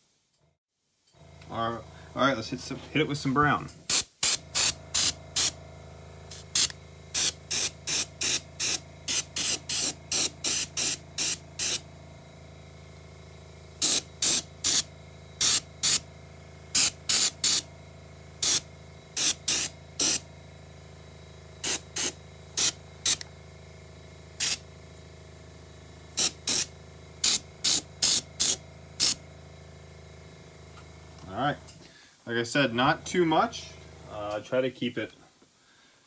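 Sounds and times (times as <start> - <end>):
airbrush hissing: 1.6 - 12.0, 13.8 - 16.1, 16.7 - 17.7, 18.4 - 20.3, 21.6 - 23.3, 24.4 - 24.7, 26.1 - 29.4.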